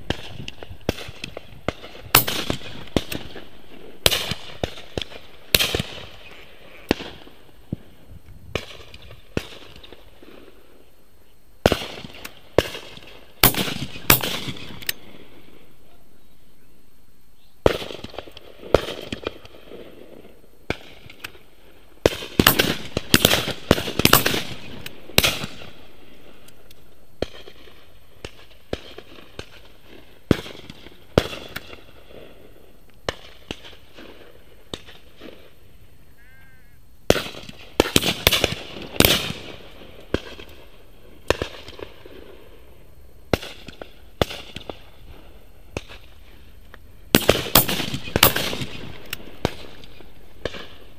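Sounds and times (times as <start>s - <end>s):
shotguns firing with echo: 0.0s - 7.4s, 11.6s - 15.5s, 17.6s - 21.4s, 22.0s - 26.5s, 27.2s - 32.4s, 37.1s - 42.5s, 47.1s - 50.8s.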